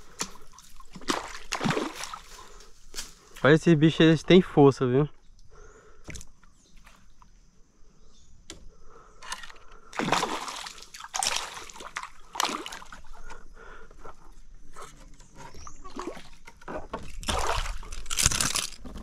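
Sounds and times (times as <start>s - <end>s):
water splashing and sloshing: 0.0s - 3.1s, 9.3s - 13.5s, 14.8s - 19.0s.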